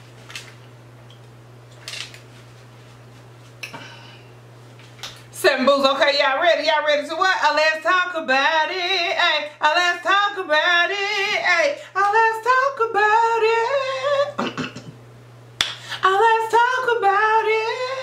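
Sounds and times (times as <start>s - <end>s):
steady low hum: 0.0s - 18.0s
woman singing a cappella: 5.3s - 14.9s, 15.8s - 18.0s.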